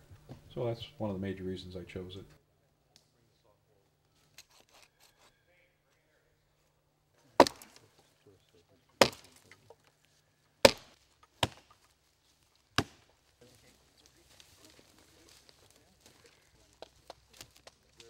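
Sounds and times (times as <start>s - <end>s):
axe chopping wood: 7.4s - 7.8s, 9.0s - 9.5s, 10.6s - 11.9s, 12.7s - 13.2s.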